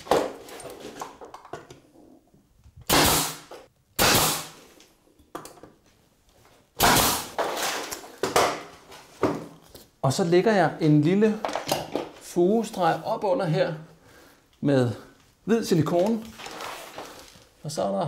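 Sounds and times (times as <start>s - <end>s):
nail gun bang with hiss: 2.9s - 4.6s, 6.8s - 7.6s.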